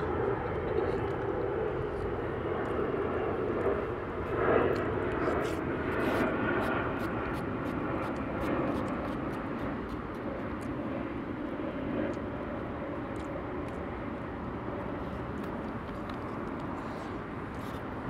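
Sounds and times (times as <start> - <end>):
distant engine drone: 0.0 - 18.0
faint clicks of eating: 13.0 - 13.9.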